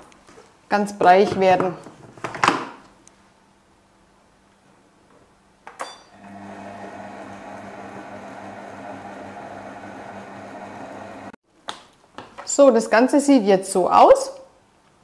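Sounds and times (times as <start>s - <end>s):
kitchen machine motor hum: 6.1s - 11.4s.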